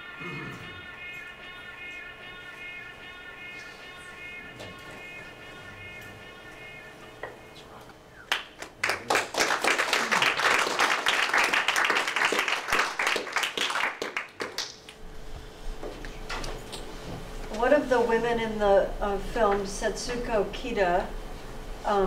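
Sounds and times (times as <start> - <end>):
audience clapping: 8.3 - 15.0.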